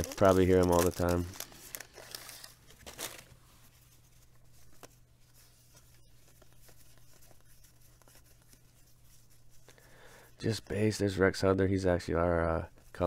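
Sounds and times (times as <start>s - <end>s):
cardboard cards rustling: 0.0s - 9.7s
low room hum: 0.0s - 13.0s.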